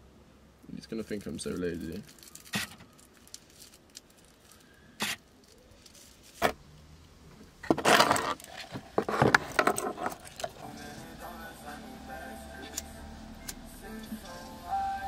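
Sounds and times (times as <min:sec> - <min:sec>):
camera rustling and clattering: 0:07.6 - 0:10.6.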